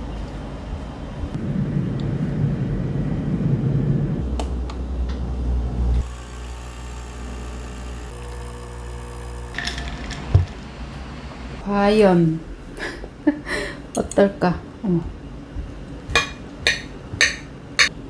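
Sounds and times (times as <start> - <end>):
coffee machine humming: 5.3 - 11.6
coffee machine pump rumbling: 6.0 - 11.6.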